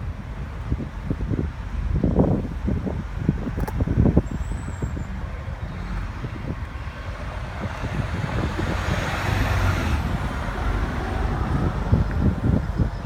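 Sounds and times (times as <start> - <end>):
low traffic rumble: 0.0 - 13.0
vehicle passing: 5.0 - 12.9.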